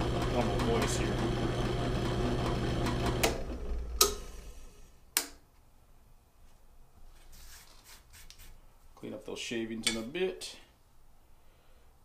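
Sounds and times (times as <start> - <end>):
drill press motor humming: 0.0 - 4.8
switch clicks: 5.1 - 5.4.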